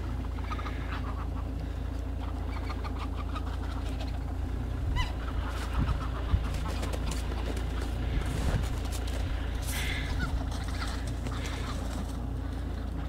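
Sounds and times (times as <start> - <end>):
geese calling: 0.0 - 13.0
steady low rumble: 0.0 - 13.0.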